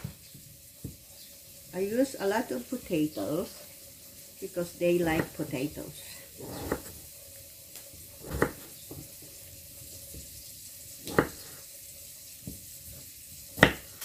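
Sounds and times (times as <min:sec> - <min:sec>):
knife slicing potato on board: 0:05.0 - 0:05.5, 0:06.4 - 0:07.0, 0:08.2 - 0:09.2, 0:11.0 - 0:11.6, 0:13.5 - 0:14.0.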